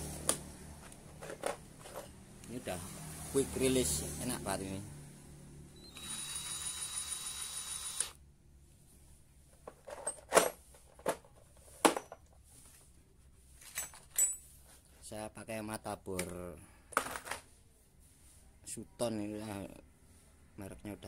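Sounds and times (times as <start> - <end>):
cordless drill running: 5.8 - 8.2.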